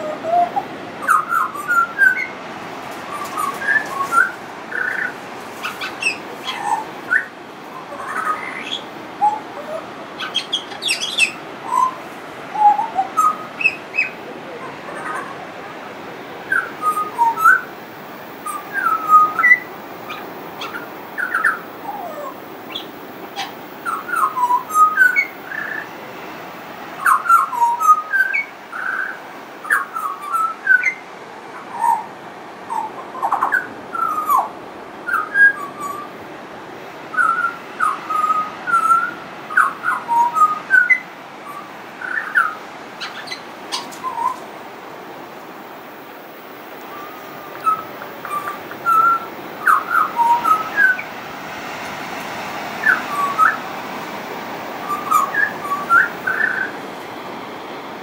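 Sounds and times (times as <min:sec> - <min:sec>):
bird whistling song: 0:00.0 - 0:02.4, 0:03.1 - 0:14.2, 0:16.5 - 0:17.7, 0:18.4 - 0:25.9, 0:27.0 - 0:31.0, 0:32.7 - 0:34.5, 0:35.1 - 0:36.2, 0:37.1 - 0:44.4, 0:46.9 - 0:51.1, 0:52.8 - 0:53.6, 0:54.8 - 0:56.8.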